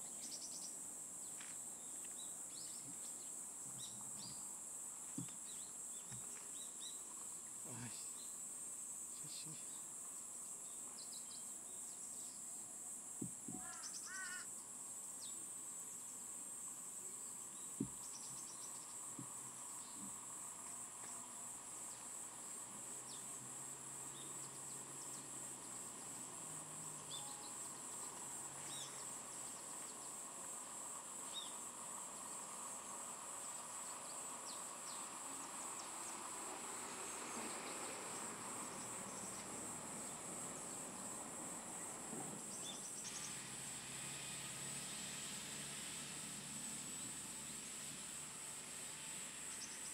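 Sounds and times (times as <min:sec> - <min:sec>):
insects chirring: 0:00.0 - 0:49.9
bird chirps: 0:13.5 - 0:14.4, 0:27.0 - 0:30.1
repeated bird call: 0:13.5 - 0:14.5.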